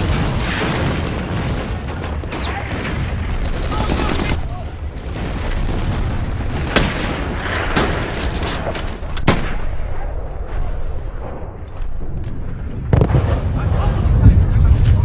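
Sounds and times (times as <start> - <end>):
steady rushing noise: 11.2 - 15.0.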